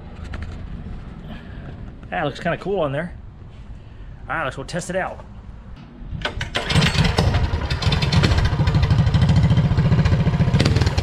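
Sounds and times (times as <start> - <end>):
small engine starting and running: 6.3 - 11.0.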